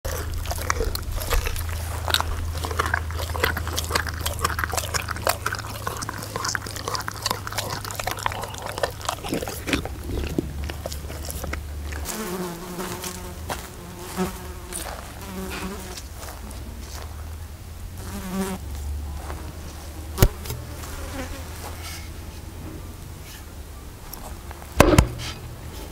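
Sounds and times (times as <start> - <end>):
dog chewing meat: 0.0 - 15.8
fly buzzing: 0.1 - 16.1, 18.0 - 18.6, 19.4 - 22.0.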